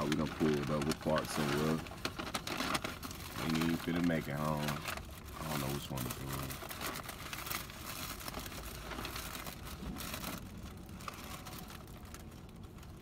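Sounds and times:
paper bag rustling and crinkling: 0:00.0 - 0:13.0.

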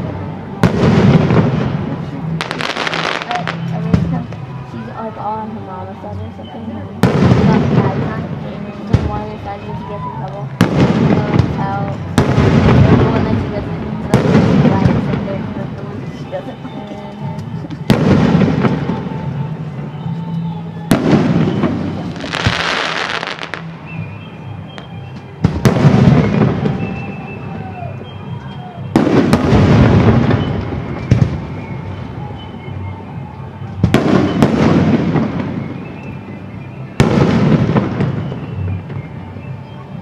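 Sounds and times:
firework shells booming: 0:00.6 - 0:04.4, 0:20.8 - 0:28.1, 0:28.9 - 0:32.2, 0:33.8 - 0:36.3.

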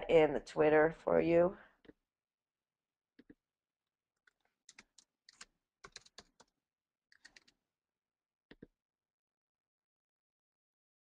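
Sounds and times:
faint keyboard typing: 0:04.3 - 0:06.5, 0:07.1 - 0:07.5.

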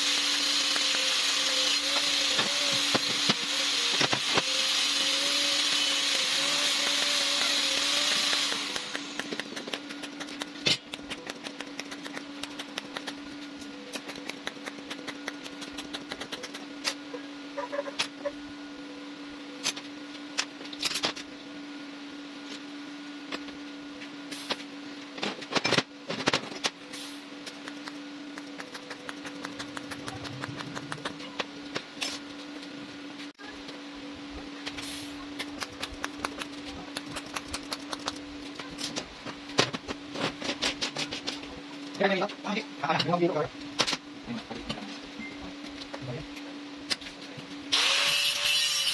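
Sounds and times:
machine hum: 0:00.0 - 0:48.8.

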